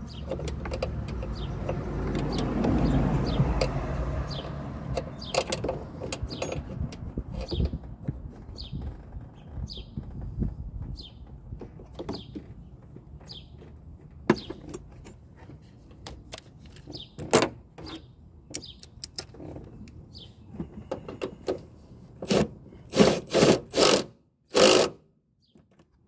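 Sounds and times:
hand tools clicking and knocking: 0.2s - 3.8s, 4.9s - 8.3s, 10.8s - 20.0s.

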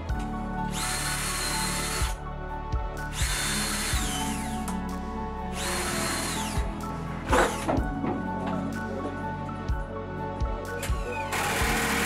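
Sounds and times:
background music with steady beat: 0.0s - 12.0s
cordless drill running: 0.7s - 2.2s, 3.1s - 4.5s, 5.6s - 6.7s, 10.9s - 12.0s.

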